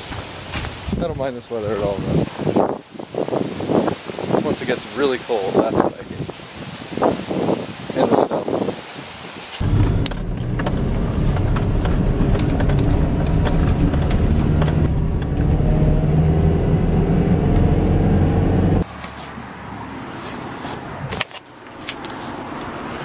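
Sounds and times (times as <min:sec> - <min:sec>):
truck engine humming: 0:09.6 - 0:18.8.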